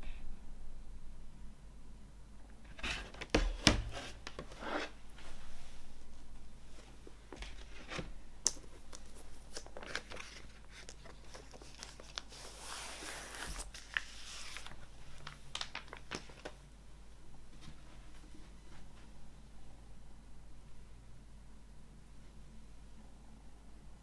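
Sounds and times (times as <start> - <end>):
plastic sleeve crinkling: 7.4 - 16.6.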